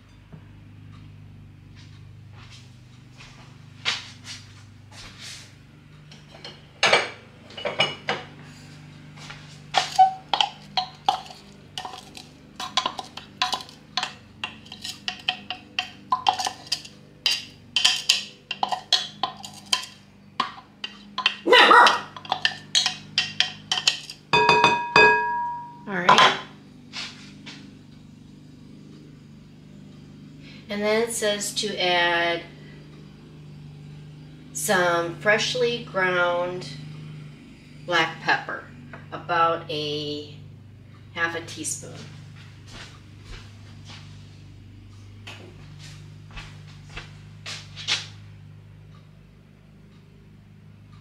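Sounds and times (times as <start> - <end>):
utensil tapping containers: 9.8 - 26.4
ringing clink: 22.1 - 26.3.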